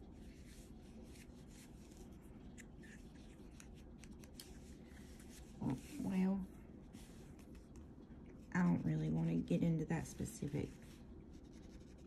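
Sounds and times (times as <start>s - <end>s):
low room hum: 0.0s - 12.0s
pencil scratching on paper: 11.3s - 12.0s.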